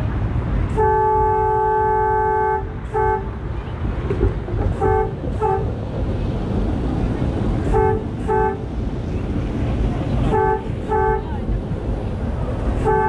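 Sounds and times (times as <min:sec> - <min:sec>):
low rumble of trolley: 0:00.0 - 0:13.0
trolley horn blasts: 0:00.6 - 0:03.5, 0:04.6 - 0:05.8, 0:07.6 - 0:08.7, 0:10.3 - 0:11.4, 0:12.8 - 0:13.0.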